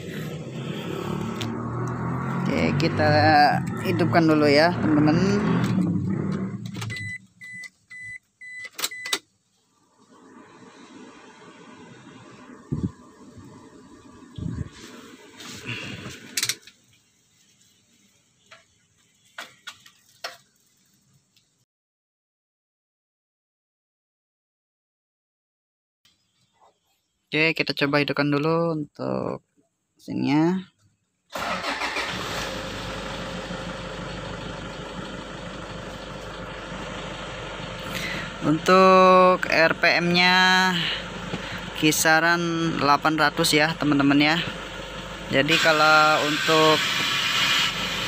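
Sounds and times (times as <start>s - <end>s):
diesel engine starting and idling: 0.0s - 9.2s, 9.8s - 16.9s, 31.3s - 48.0s.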